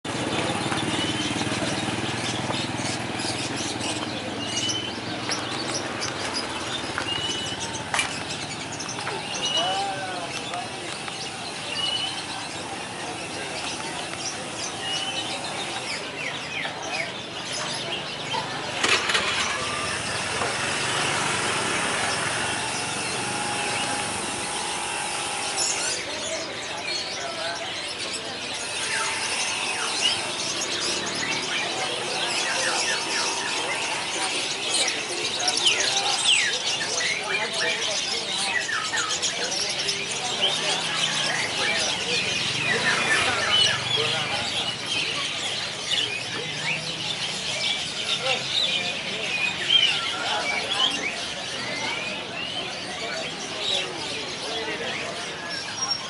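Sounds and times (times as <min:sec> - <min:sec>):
caged birds chirping: 0:00.0 - 0:56.0
motorcycle engine running: 0:00.1 - 0:09.3, 0:17.7 - 0:26.2, 0:28.4 - 0:35.9.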